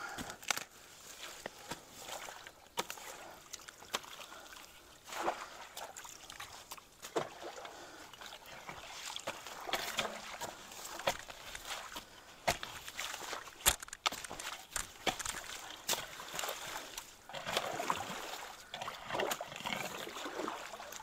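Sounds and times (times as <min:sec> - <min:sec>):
water sloshing and splashing: 0:00.2 - 0:21.0
stick splashing into water: 0:09.4 - 0:18.4
wood knocking and snapping: 0:13.6 - 0:15.4.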